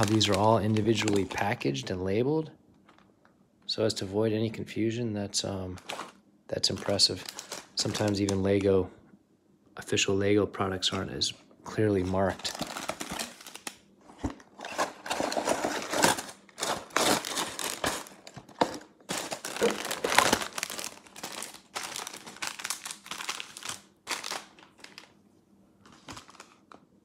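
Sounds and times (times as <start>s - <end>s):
plastic bags crinkling: 0.0s - 1.9s, 5.8s - 8.8s, 11.9s - 25.2s, 25.8s - 26.8s.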